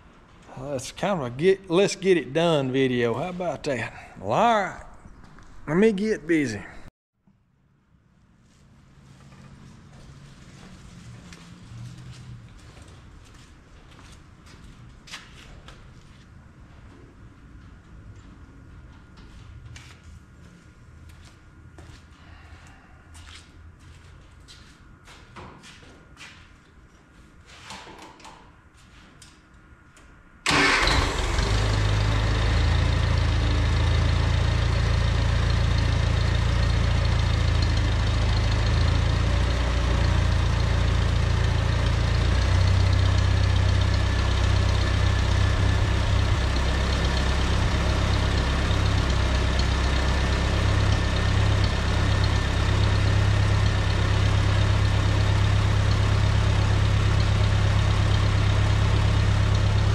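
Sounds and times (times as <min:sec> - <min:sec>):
tractor engine starting and idling: 0:30.4 - 0:59.9.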